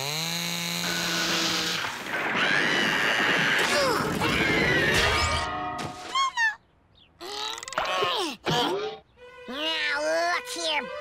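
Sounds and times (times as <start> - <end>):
cartoon music: 8.6 - 11.0.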